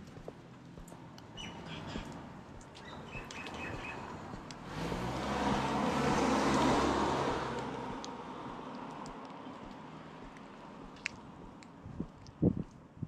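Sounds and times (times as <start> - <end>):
car driving past: 3.1 - 8.7.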